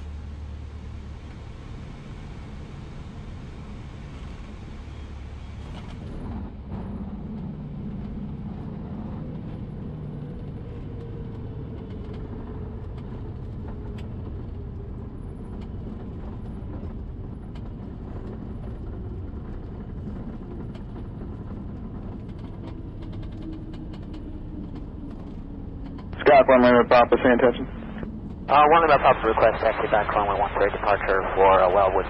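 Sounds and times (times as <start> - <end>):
aircraft engine idling: 17.2 - 32.0.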